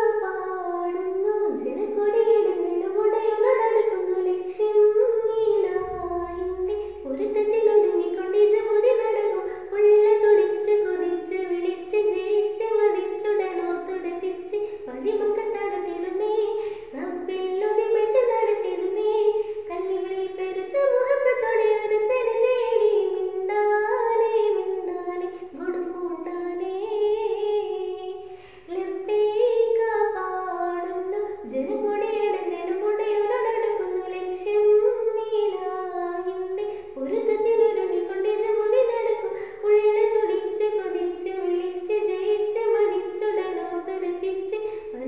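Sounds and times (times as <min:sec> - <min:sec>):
girl singing solo: 0:00.0 - 0:45.0.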